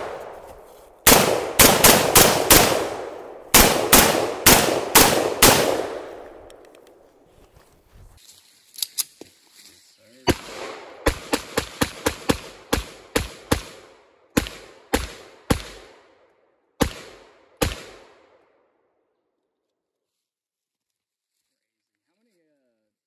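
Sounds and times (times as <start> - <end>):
gunshots with echo: 0.0 - 0.4, 1.0 - 6.4.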